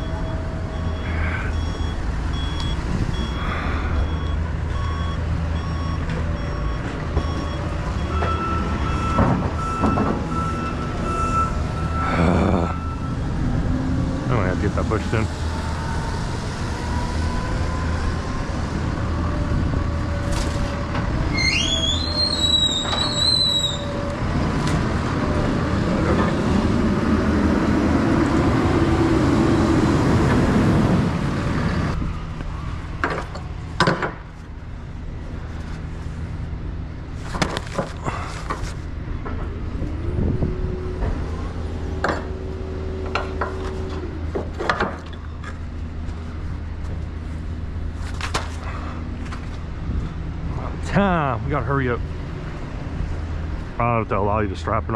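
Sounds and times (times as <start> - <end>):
road rumble: 0.0 - 54.9
knocks and clunks: 9.0 - 10.4, 33.0 - 34.3
high squeal: 21.3 - 24.1.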